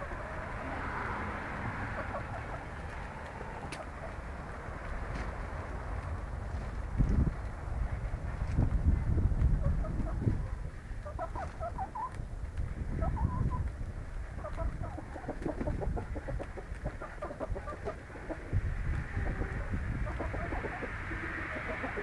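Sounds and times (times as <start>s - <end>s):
chickens clucking: 0.0s - 5.5s, 8.0s - 22.0s.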